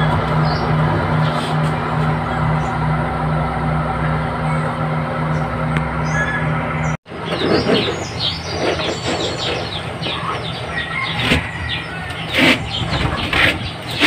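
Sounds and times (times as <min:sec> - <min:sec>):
fan humming: 0:00.0 - 0:14.0
small birds chirping: 0:04.0 - 0:14.0.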